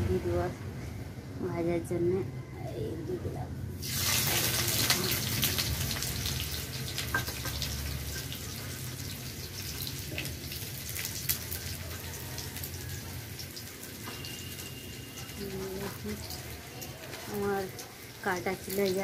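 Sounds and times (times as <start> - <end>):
onions sizzling in oil: 3.8 - 19.0.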